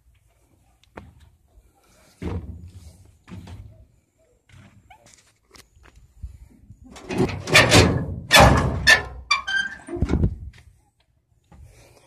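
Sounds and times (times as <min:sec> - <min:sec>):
metal panel rattling scrape: 0:06.9 - 0:10.3.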